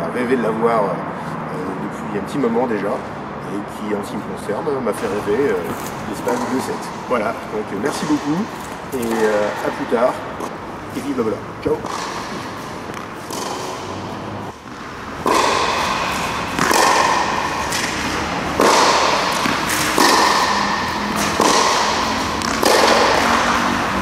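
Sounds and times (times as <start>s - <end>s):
tennis ball hitting racket and wall: 4.9s - 24.0s.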